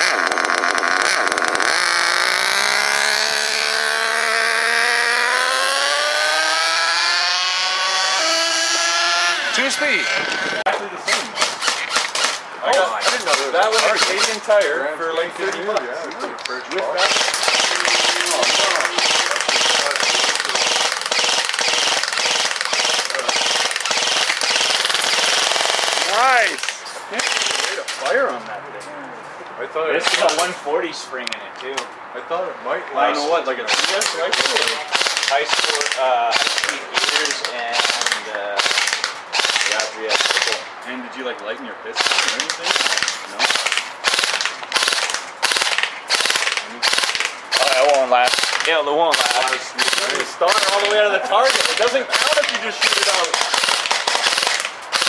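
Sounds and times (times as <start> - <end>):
airsoft gun full auto fire: 11.1 - 12.4, 17.0 - 26.6, 27.2 - 27.8, 33.7 - 40.6, 42.0 - 55.0.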